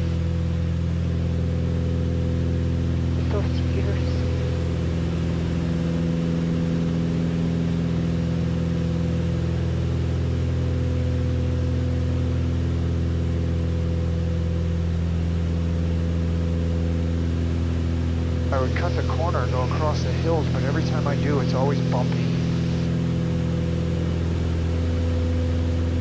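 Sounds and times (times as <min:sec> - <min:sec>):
airplane engine drone in cabin: 0:00.0 - 0:26.0.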